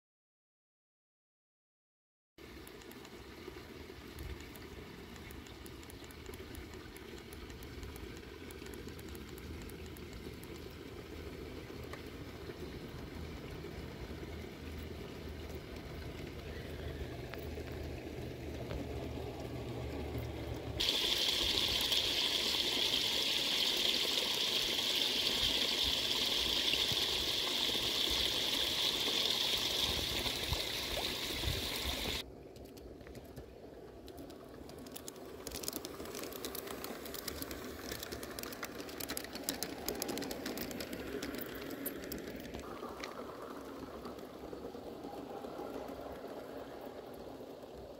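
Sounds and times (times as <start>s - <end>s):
model train rumbling: 6.5s - 32.2s, 34.2s - 47.9s
loud steady hiss: 20.8s - 32.2s.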